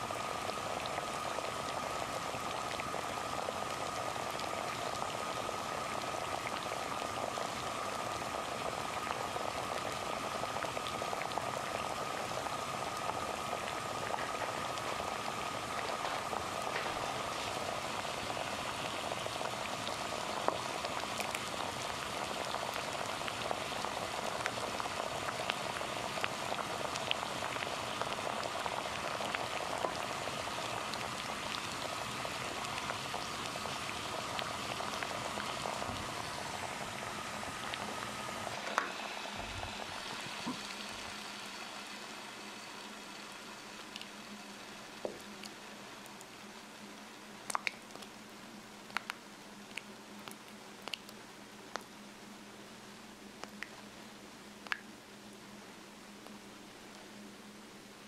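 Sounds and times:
water boiling and bubbling: 0.0s - 52.0s, 53.3s - 54.0s, 54.6s - 55.0s.

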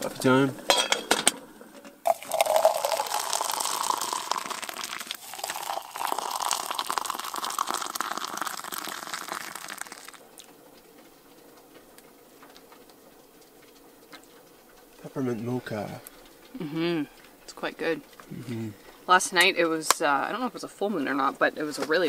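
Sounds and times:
hot water pouring into cup: 2.0s - 10.5s.

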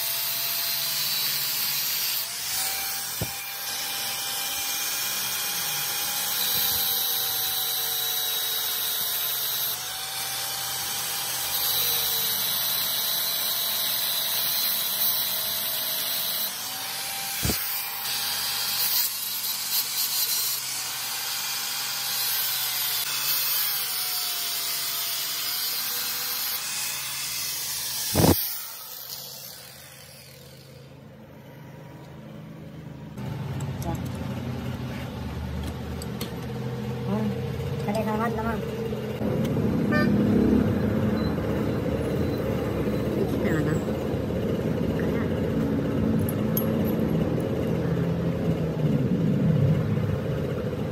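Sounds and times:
angle grinder cutting metal: 0.0s - 32.3s.

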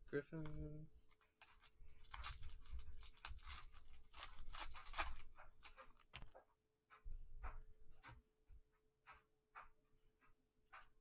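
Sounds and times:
foil pack ripping and crinkling: 1.1s - 6.2s.

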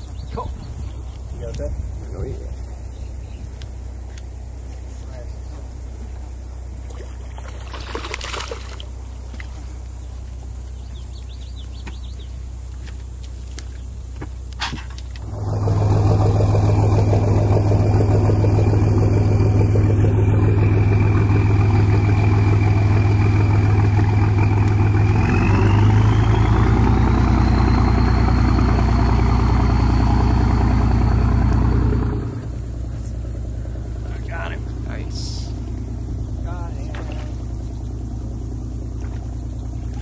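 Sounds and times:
outboard motor running: 0.0s - 40.0s.

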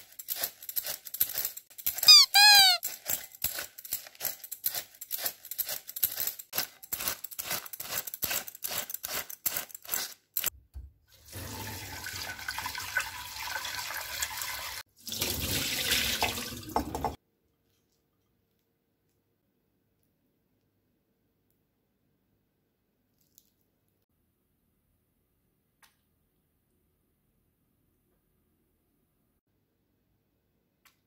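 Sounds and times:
peeler rasping cabbage: 0.0s - 10.5s
tap water running into bowl: 11.1s - 17.2s.

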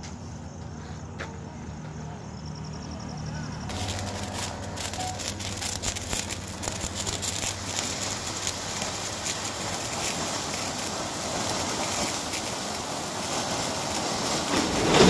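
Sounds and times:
firework hissing and crackling: 3.4s - 15.0s.

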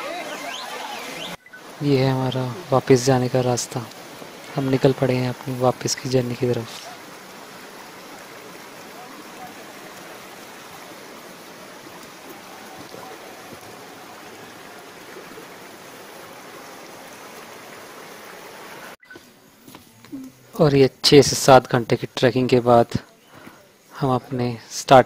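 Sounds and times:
water rushing in rocky stream: 0.0s - 19.0s.

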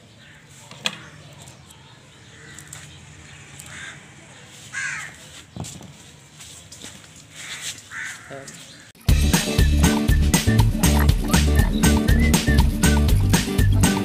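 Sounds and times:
bird cawing: 2.2s - 5.3s, 7.3s - 9.0s.

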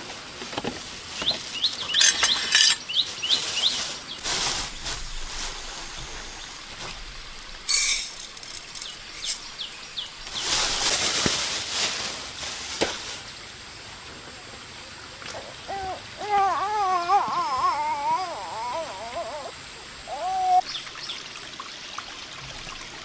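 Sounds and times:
plastic bag rustling: 0.0s - 13.2s
wavering whimpering cry: 15.4s - 20.6s.

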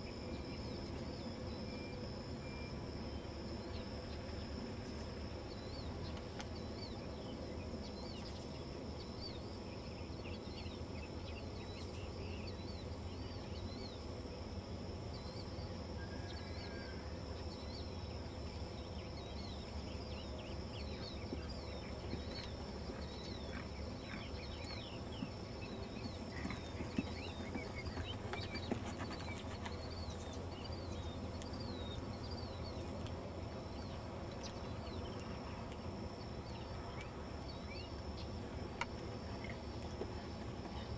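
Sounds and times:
steady low hum: 0.0s - 40.9s
small birds chirping: 17.5s - 40.9s.

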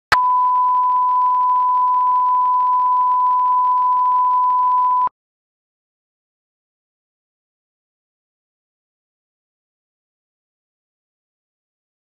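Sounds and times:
steady test tone beep: 0.1s - 5.1s.

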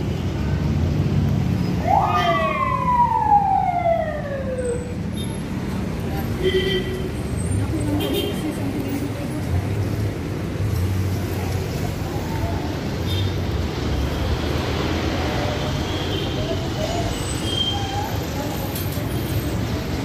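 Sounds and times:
rumble of passing traffic: 0.0s - 20.0s.

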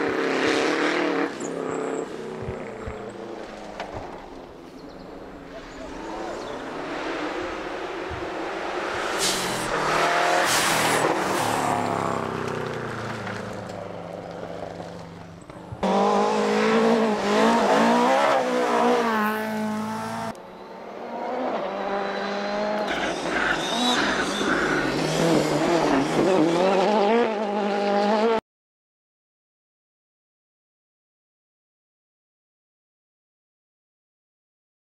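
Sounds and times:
rally car engine revving: 6.0s - 15.0s, 15.8s - 28.4s.

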